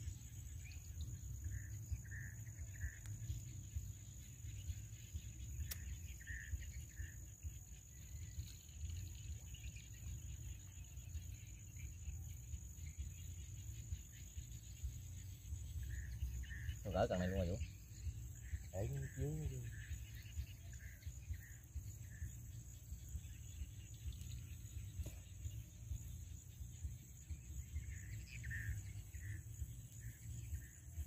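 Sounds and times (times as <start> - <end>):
insects shrilling: 2.0 - 11.9, 12.8 - 30.7
single click: 5.6 - 6.0.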